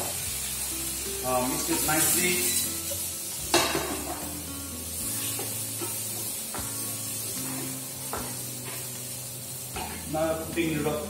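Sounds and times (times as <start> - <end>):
background music with held notes: 0.0 - 11.0
vegetables sizzling in frying pan: 0.0 - 11.0
spatula scraping pan: 5.0 - 8.9.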